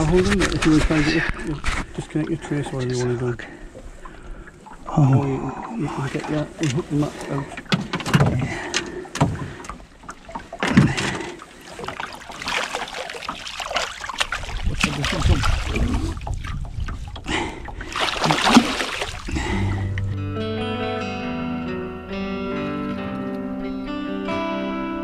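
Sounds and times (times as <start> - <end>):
fish splashing in water: 7.6 - 19.9
net knocking against hull: 7.6 - 20.0.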